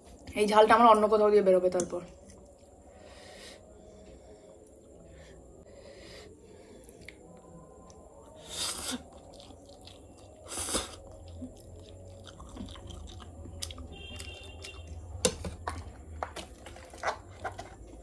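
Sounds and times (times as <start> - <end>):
wet chewing clicks: 9.0 - 15.0, 15.6 - 18.0.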